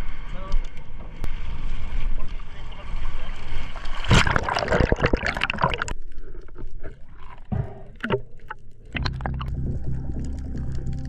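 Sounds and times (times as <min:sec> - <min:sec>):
underwater bubbling and gurgling: 0:00.0 - 0:11.0
loud splashing into water: 0:03.8 - 0:05.9.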